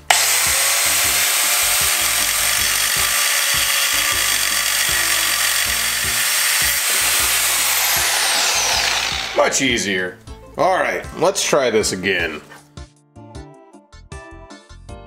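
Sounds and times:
angle grinder cutting metal rod: 0:00.0 - 0:09.7.

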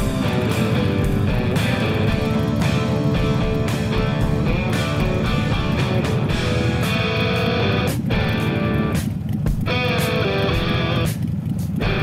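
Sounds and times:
guitar-led background music: 0:00.0 - 0:12.0.

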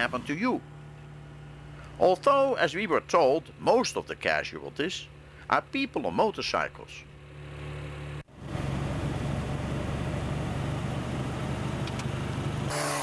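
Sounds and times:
car engine hum: 0:06.9 - 0:13.0.

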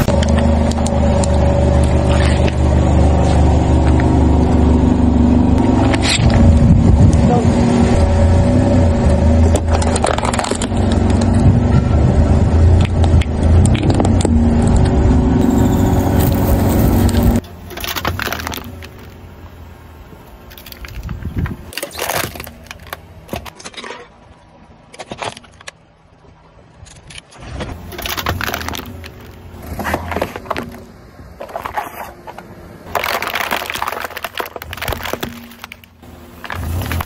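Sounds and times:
tyre crushing can and plastic: 0:09.5 - 0:11.4, 0:15.4 - 0:19.2, 0:20.5 - 0:24.1, 0:27.3 - 0:37.0.

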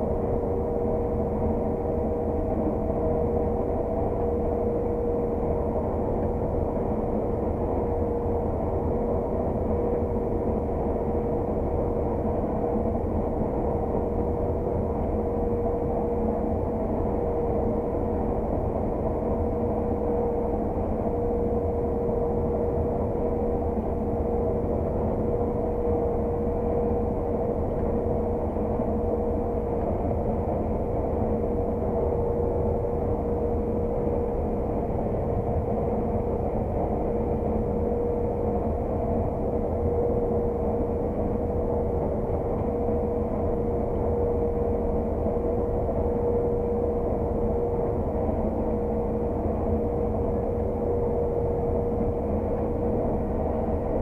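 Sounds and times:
combine harvester engine drone: 0:00.0 - 0:54.0
steady whining tone: 0:00.0 - 0:54.0.

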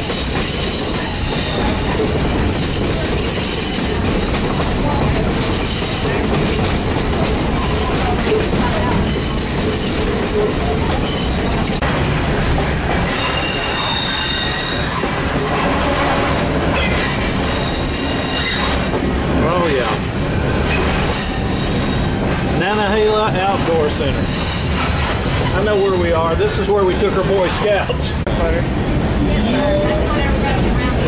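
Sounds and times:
train wheels rumbling on rail: 0:00.0 - 0:31.0
high wheel squeal: 0:13.0 - 0:15.2, 0:16.7 - 0:18.9, 0:24.2 - 0:26.2.

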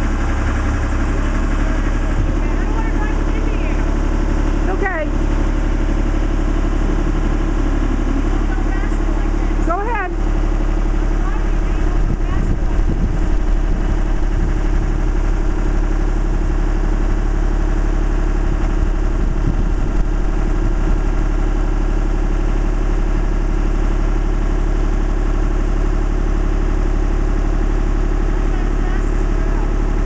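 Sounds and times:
boom lift engine running: 0:00.0 - 0:30.0.

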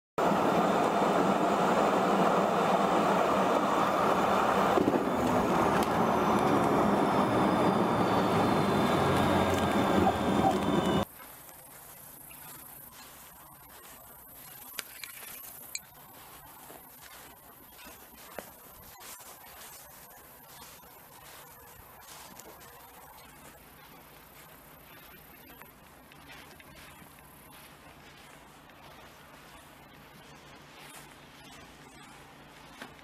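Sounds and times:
falling jet whine: 0:00.2 - 0:11.0
jet engine and air rush: 0:00.2 - 0:11.0
faint outdoor background: 0:00.2 - 0:33.0.

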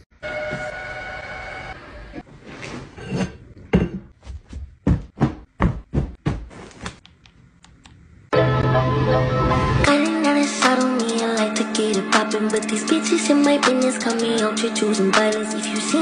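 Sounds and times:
objects knocking and tapping: 0:03.6 - 0:04.2
music: 0:08.3 - 0:16.0.

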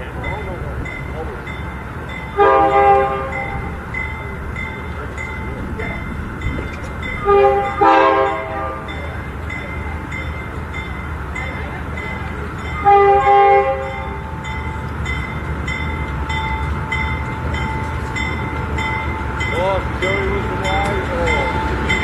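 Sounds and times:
diesel locomotive engine rumbling: 0:00.0 - 0:22.0
bell ringing: 0:00.2 - 0:22.0
train horn blasts: 0:02.3 - 0:03.8, 0:07.2 - 0:09.0, 0:12.8 - 0:14.2.

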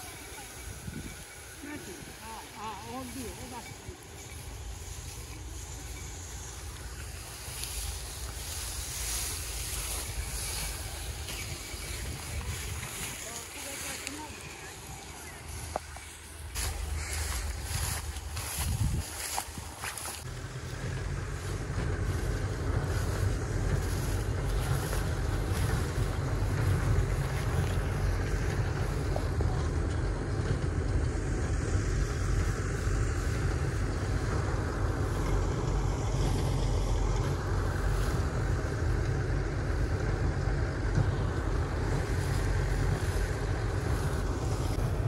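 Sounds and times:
machine motor rumbling: 0:00.0 - 0:45.0.

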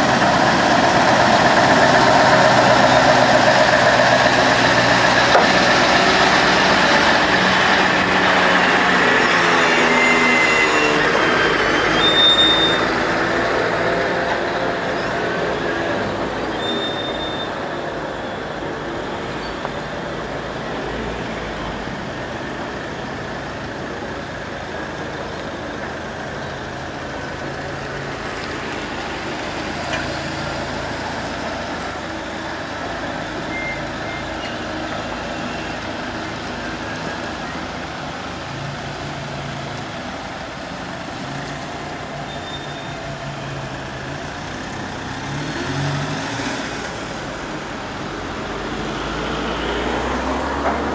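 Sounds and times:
heavy truck driving past: 0:00.0 - 0:40.2.

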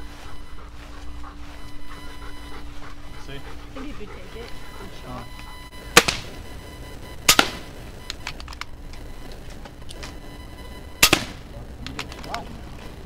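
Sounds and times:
air rifle shots: 0:05.9 - 0:06.4, 0:07.2 - 0:08.6, 0:11.0 - 0:12.1.

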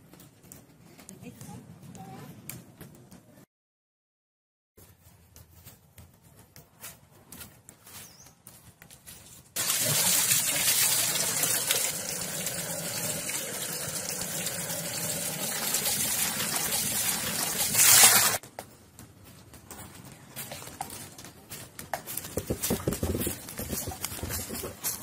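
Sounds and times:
water splashing into metal pot: 0:09.6 - 0:18.4.

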